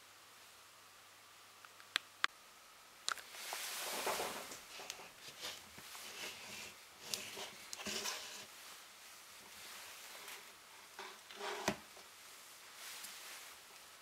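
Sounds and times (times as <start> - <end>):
plastic rubbing: 3.4 - 8.5.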